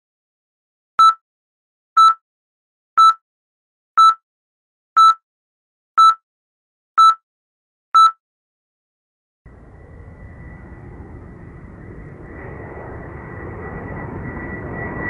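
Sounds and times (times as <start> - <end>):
short electronic beep: 2.0 - 2.2, 3.0 - 3.2, 4.0 - 4.2, 5.0 - 5.2, 6.0 - 6.2, 7.0 - 7.2, 8.0 - 8.2.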